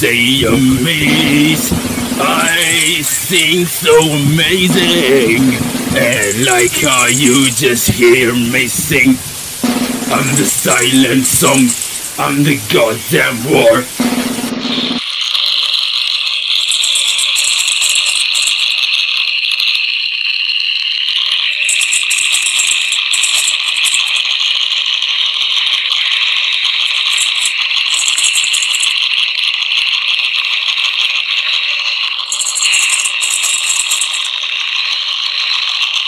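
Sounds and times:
high hiss bursts: 0.0 - 14.8
harsh rattling buzz: 0.0 - 15.0.

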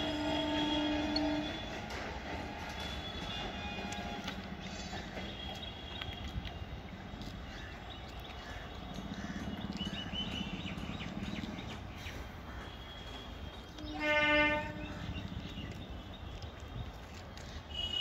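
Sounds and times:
train horn blast: 0.0 - 4.6, 12.7 - 15.1
birds chirping: 4.0 - 18.0.

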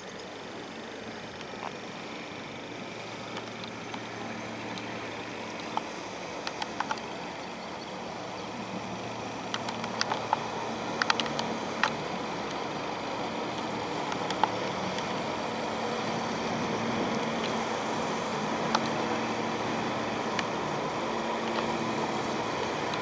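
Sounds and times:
boat engine humming: 0.0 - 23.0
sharp clicks and taps: 9.5 - 12.6, 13.5 - 15.2.

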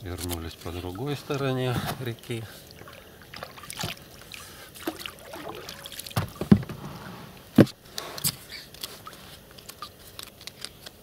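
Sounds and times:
water splashes: 0.8 - 6.7.

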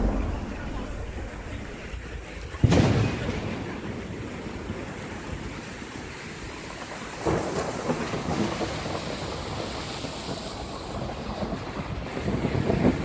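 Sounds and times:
wave crashing: 0.0 - 3.7
surf washing: 0.0 - 13.0.

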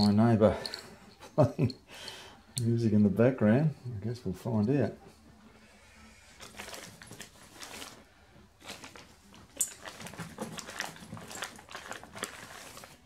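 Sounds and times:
plastic bag crinkling: 6.4 - 13.0.

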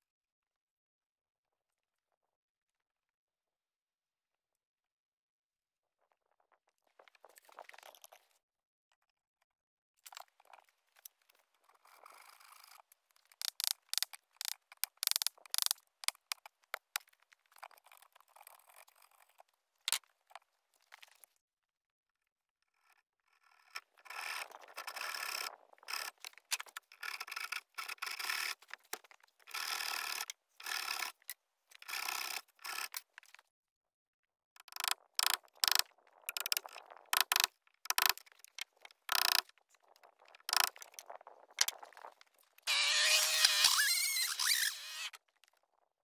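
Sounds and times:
hand tool scraping log: 23.8 - 33.4, 38.9 - 39.4, 42.6 - 45.2.

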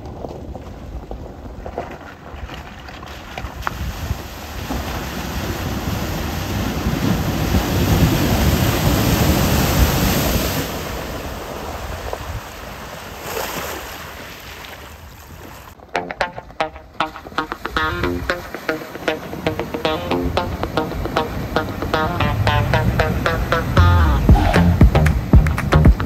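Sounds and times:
water rushing and spraying: 4.5 - 12.0.

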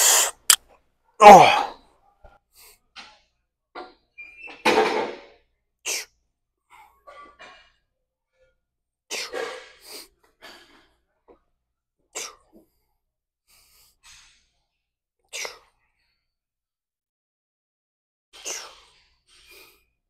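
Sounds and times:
person exhaling forcefully: 0.0 - 0.6, 1.2 - 1.7.

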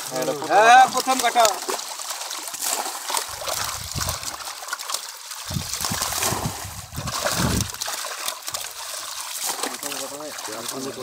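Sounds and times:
water splashing over fish: 0.0 - 11.0
dull low thumps: 3.4 - 4.3, 5.5 - 7.8.

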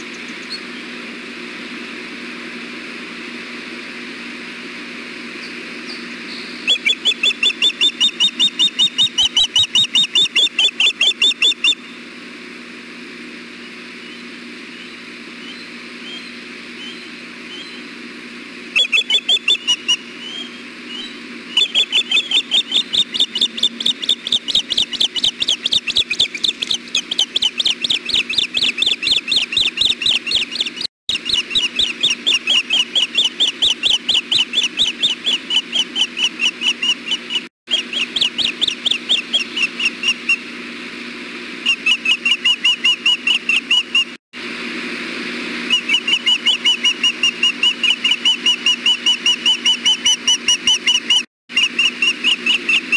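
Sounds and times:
ospreys whistled chirps: 5.4 - 12.0, 13.6 - 17.9, 18.7 - 40.4, 41.7 - 44.2, 45.7 - 52.9.

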